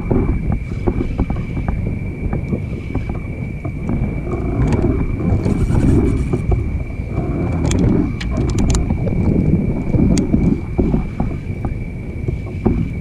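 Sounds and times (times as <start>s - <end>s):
wind buffeting microphone: 0.0s - 13.0s
water lapping against hull: 0.1s - 13.0s
sharp clicks: 4.7s - 6.6s.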